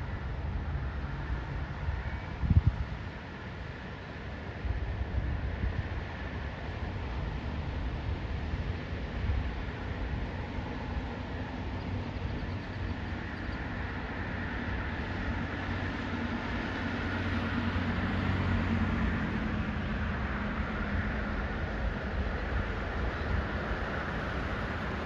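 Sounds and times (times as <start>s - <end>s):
vehicle passing rumble: 14.0s - 25.0s.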